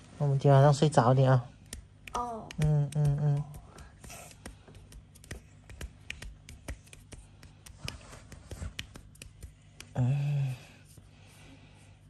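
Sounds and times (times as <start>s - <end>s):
person humming: 2.1s - 4.4s, 9.8s - 10.8s.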